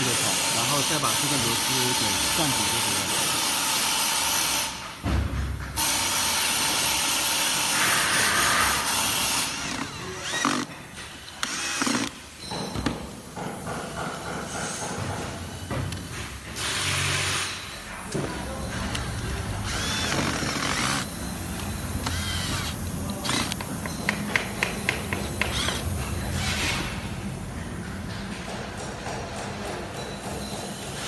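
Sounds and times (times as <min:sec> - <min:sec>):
cordless drill driving screws: 0:09.4 - 0:10.7, 0:11.3 - 0:12.2, 0:19.6 - 0:21.1, 0:22.0 - 0:23.6, 0:25.5 - 0:25.8.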